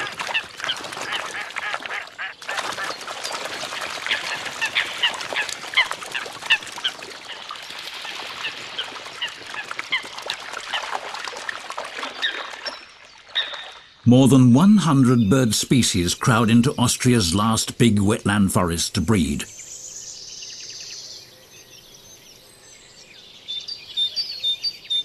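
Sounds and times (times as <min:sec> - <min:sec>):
coots calling: 0:00.0 - 0:03.1, 0:04.1 - 0:07.4
water splashing: 0:00.0 - 0:19.4.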